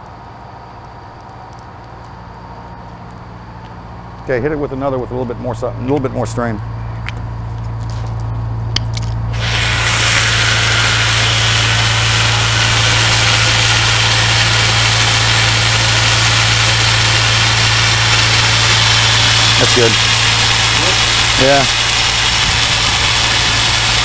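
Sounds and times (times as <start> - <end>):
hose nozzle spraying hiss: 9.3 - 24.0.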